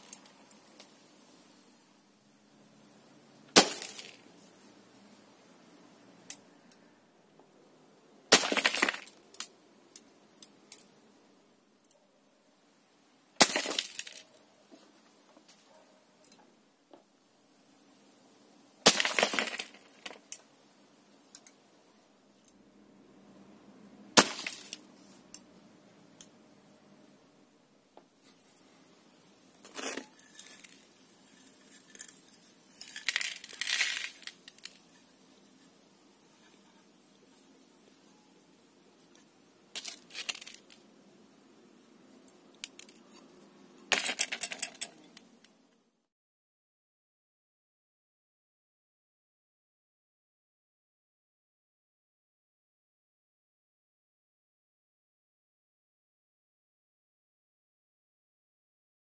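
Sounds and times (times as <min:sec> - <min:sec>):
pellets cracking ceramic pot: 0:03.5 - 0:04.3, 0:08.3 - 0:09.5, 0:18.9 - 0:20.4, 0:24.2 - 0:24.9, 0:29.6 - 0:35.0, 0:39.8 - 0:40.8, 0:43.9 - 0:45.2
ceramic shards clattering: 0:43.9 - 0:45.1.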